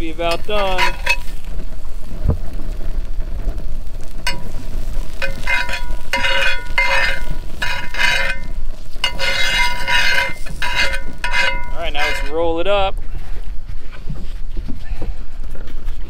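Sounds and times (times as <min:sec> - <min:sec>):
fish sizzling in butter: 0:00.0 - 0:12.6
steady low rumble: 0:00.0 - 0:16.0.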